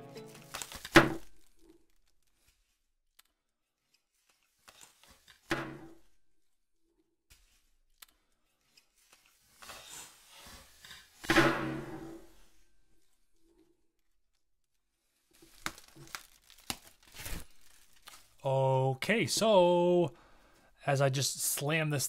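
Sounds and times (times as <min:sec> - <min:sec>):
bubble wrap crinkling: 0:00.2 - 0:03.0, 0:14.0 - 0:18.5.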